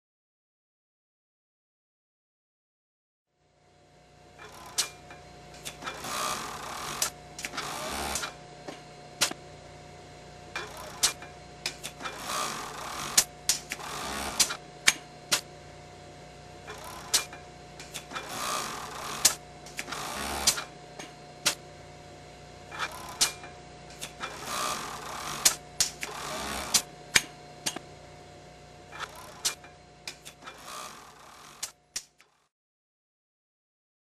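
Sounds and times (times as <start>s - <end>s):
steady machine hum: 3.4s - 32.2s
sewing machine stitching: 4.4s - 8.4s, 10.6s - 15.5s, 16.7s - 21.6s, 22.7s - 27.8s, 28.9s - 32.5s
sharp machine clicks: 4.4s - 8.4s, 10.6s - 15.5s, 16.7s - 21.6s, 22.7s - 27.8s, 28.9s - 32.4s.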